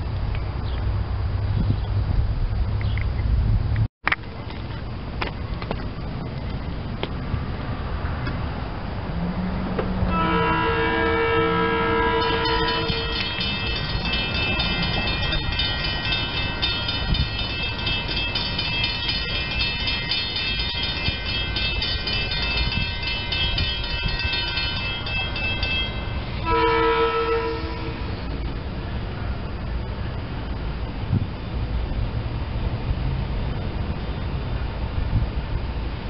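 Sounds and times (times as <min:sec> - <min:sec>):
electric train rumble and whine: 0:00.0 - 0:36.0
two-note train horn: 0:10.0 - 0:17.4, 0:22.7 - 0:28.4.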